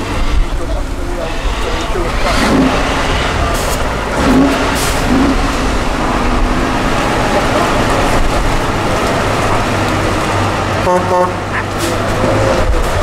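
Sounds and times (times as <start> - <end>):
truck diesel engine pulling hard: 0.0 - 13.0.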